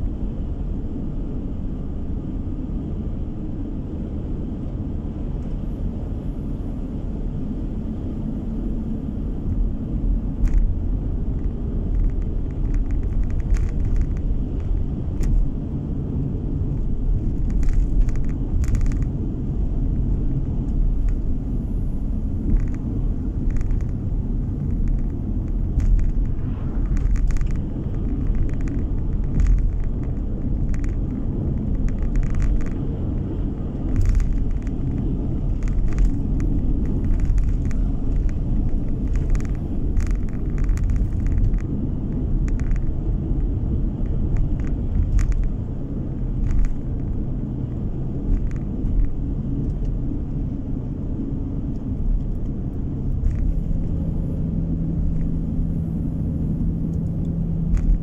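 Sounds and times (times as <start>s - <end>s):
car engine and tyre rumble: 0.0s - 58.0s
car knocks and rattles: 10.2s - 21.4s, 22.3s - 55.5s, 56.9s - 58.0s.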